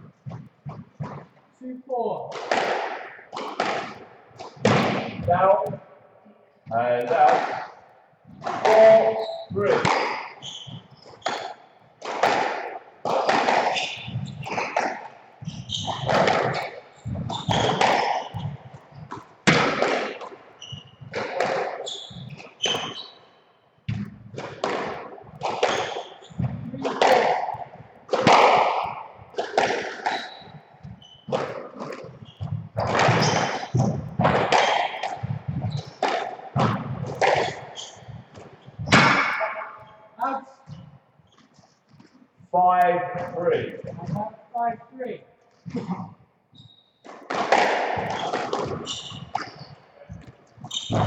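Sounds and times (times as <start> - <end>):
squash ball hitting rackets and walls: 0.2 - 1.4, 2.2 - 5.9, 6.6 - 40.0, 40.6 - 44.4, 45.5 - 51.0
shoe squeaks: 6.9 - 42.3, 45.6 - 47.2, 48.0 - 51.0
footsteps on wooden floor: 7.7 - 23.2, 23.8 - 42.6, 45.5 - 51.0.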